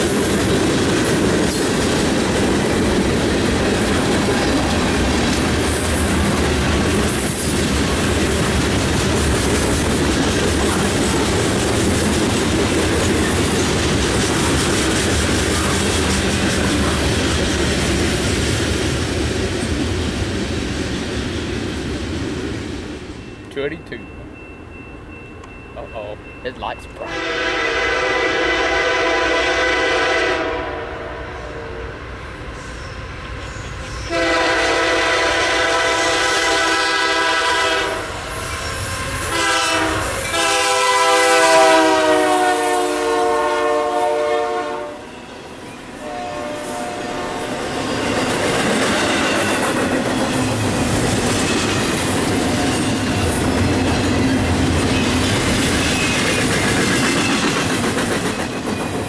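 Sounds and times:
train wheels clattering on rails: 0.0 - 23.4, 47.5 - 59.0
locomotive air horn blasts: 27.0 - 31.9, 34.1 - 38.1, 39.3 - 45.1, 46.0 - 47.6.

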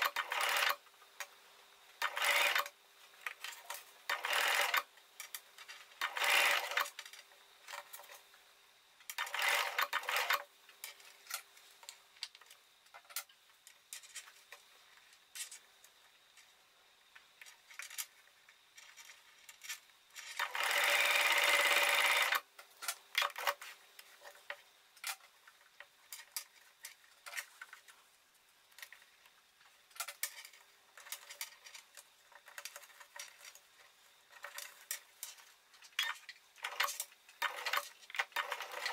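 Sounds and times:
electric sewing machine stitching: 0.0 - 0.8, 2.0 - 2.7, 4.1 - 4.9, 6.0 - 6.9, 9.2 - 10.5, 20.4 - 22.4, 36.6 - 38.9.

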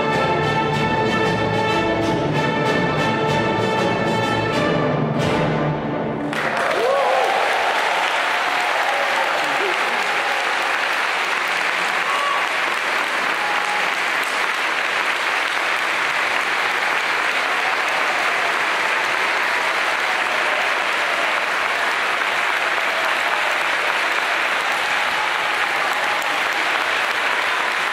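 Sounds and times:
large audience applauding: 6.2 - 27.9.

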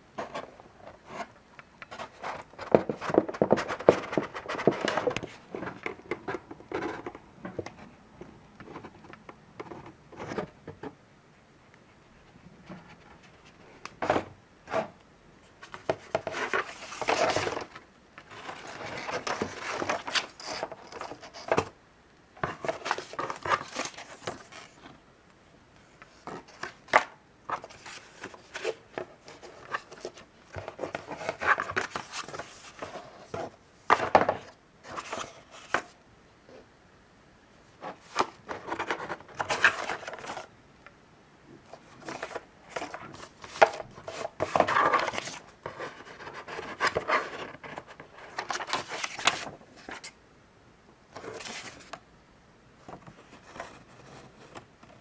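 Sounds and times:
paper rustling and sliding: 15.6 - 21.7, 26.0 - 36.0, 37.8 - 40.5, 41.7 - 50.1, 51.2 - 52.0.

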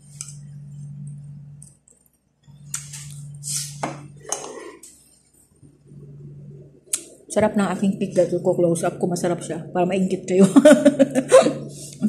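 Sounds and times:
fork scraping a ceramic plate: 3.5 - 4.9.

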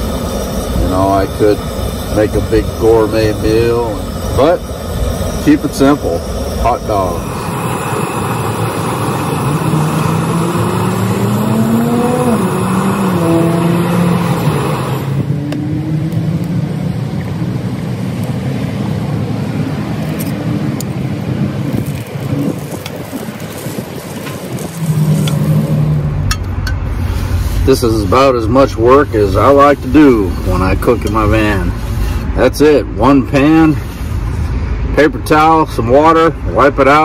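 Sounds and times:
hiss: 0.0 - 15.3, 26.8 - 28.0, 29.3 - 32.3, 33.5 - 34.6
motor engine running: 0.0 - 18.7, 19.9 - 32.4.

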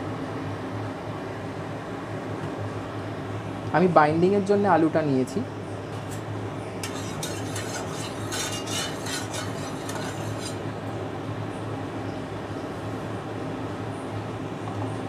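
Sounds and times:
metal spoon scraping a pan: 6.8 - 10.7.

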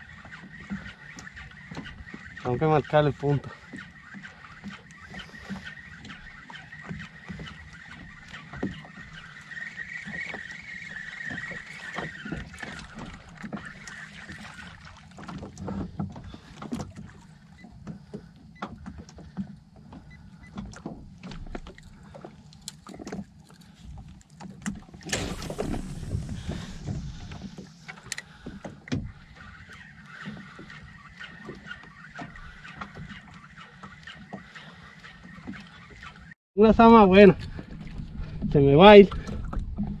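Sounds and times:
water washing: 24.6 - 36.3.

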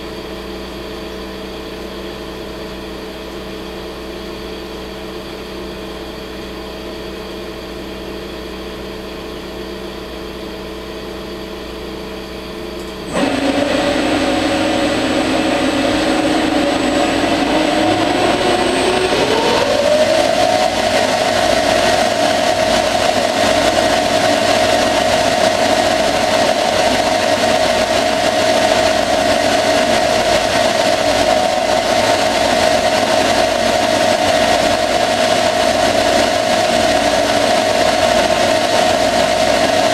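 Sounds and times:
spindle whine: 9.6 - 39.9
lathe humming: 12.7 - 39.9.

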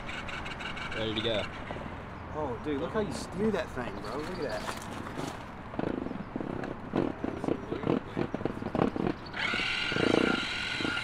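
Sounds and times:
vinyl pool float squeaking: 7.0 - 11.0
small electric motor whine: 8.8 - 11.0.

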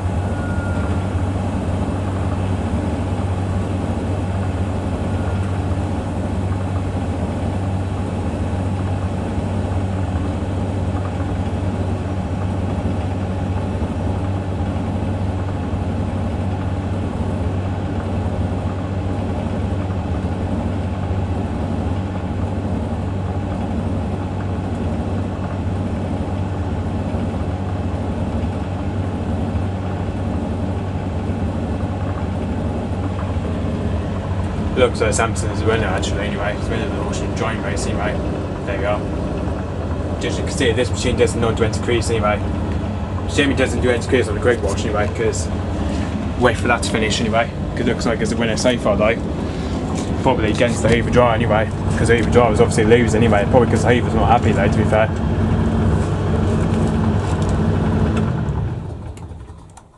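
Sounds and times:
washing machines humming: 0.0 - 59.9.

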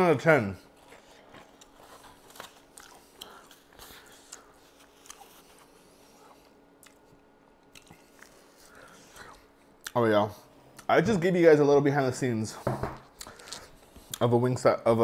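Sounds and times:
man chewing and crunching: 0.8 - 10.0.

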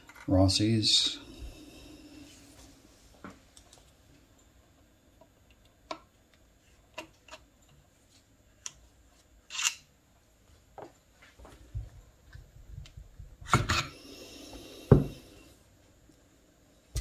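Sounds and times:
screwdriver scrape: 9.5 - 9.8.

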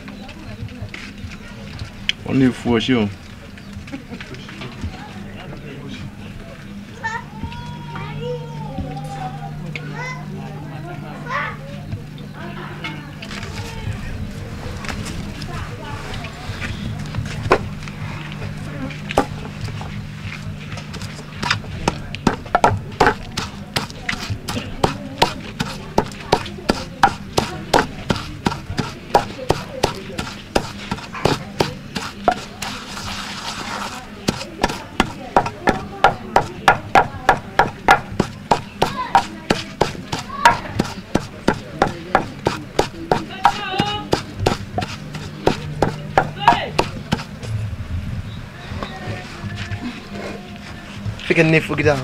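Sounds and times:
pestle pounding in wooden mortar: 17.4 - 17.8, 19.0 - 20.0, 20.7 - 47.4.

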